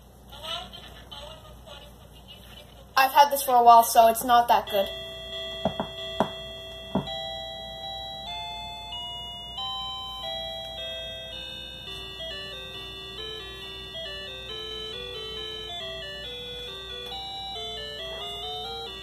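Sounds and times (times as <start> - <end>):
electronic beeping melody: 4.8 - 19.0.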